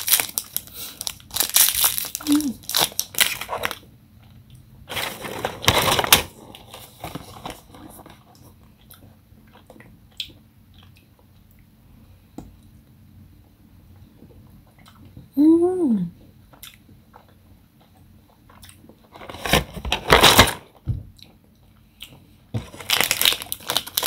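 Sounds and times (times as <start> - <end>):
packaging rustling: 0.0 - 3.8, 4.9 - 8.2, 19.1 - 20.6, 22.6 - 24.0.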